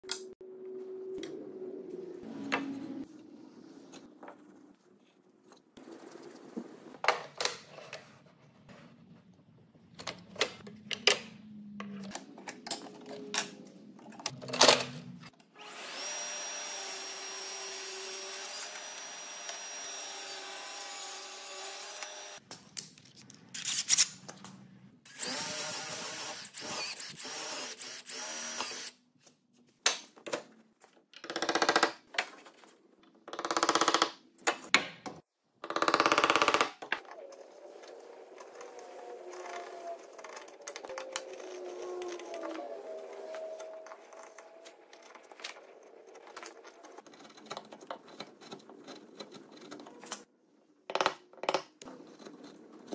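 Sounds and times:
table saw cutting wood: 15.6s - 22.4s.

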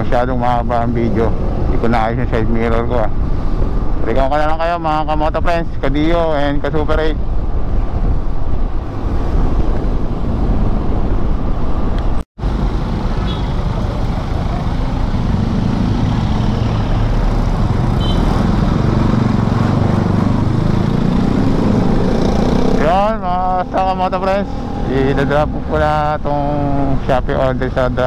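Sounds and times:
wind noise: 0.0s - 12.2s
road noise: 0.0s - 28.0s.

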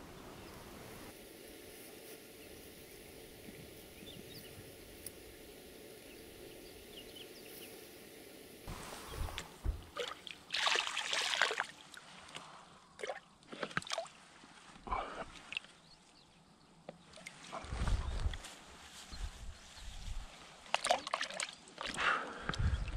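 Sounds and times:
water sloshing and splashing: 8.7s - 12.4s, 13.0s - 14.7s, 20.6s - 22.0s.

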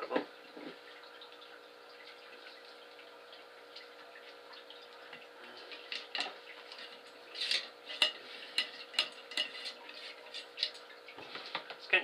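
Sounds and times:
rod scraping and clicking in barrel: 6.7s - 10.8s.

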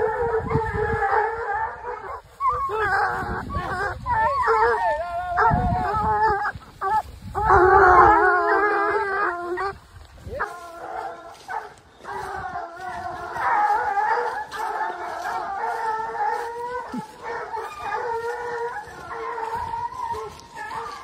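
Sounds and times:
puppies howling and yelping: 0.0s - 21.0s.

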